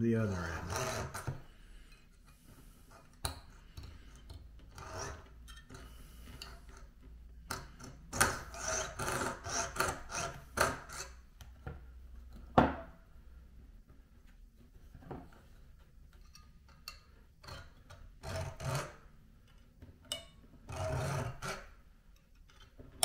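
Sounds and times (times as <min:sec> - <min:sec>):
fine saw rasping through metal: 0:00.1 - 0:01.5, 0:04.7 - 0:06.4, 0:08.1 - 0:11.2, 0:18.2 - 0:19.0, 0:20.7 - 0:21.7.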